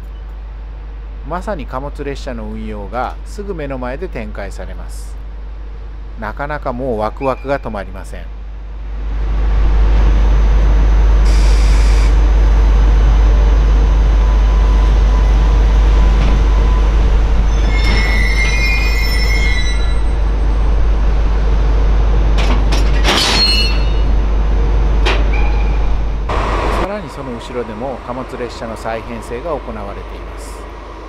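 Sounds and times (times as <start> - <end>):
freight train running noise: 0.0 - 31.0
wheel flanges squealing on rails: 14.2 - 20.7, 22.7 - 24.2
metallic clanks: 22.4 - 24.1.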